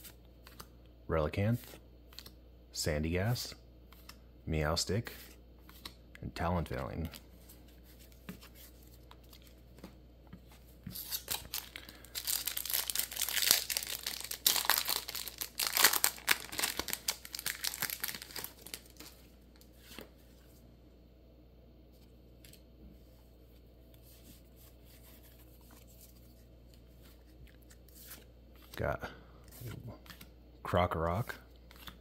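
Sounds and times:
foil wrapper crinkling and tearing: 0:11.0 - 0:19.2.

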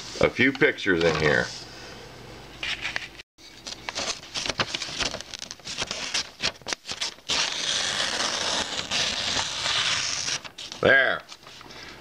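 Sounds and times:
newspaper rustling and crinkling: 0:03.6 - 0:11.6
knife slicing paper: 0:06.2 - 0:10.8.

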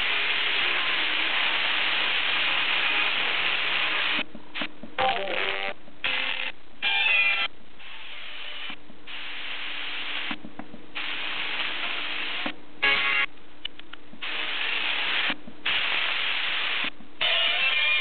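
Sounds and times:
radio static hiss: 0:00.0 - 0:18.0
radio station broadcast: 0:02.5 - 0:10.4.

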